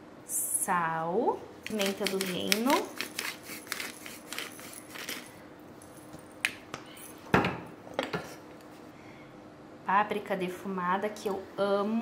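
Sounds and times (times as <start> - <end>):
seasoning container clicking: 1.6 - 4.5
objects knocking on counter: 7.3 - 8.3.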